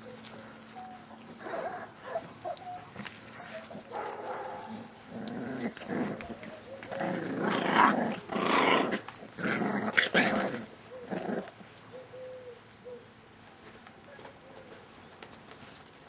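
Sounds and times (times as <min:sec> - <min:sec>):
puppies growling: 0:00.0 - 0:11.7.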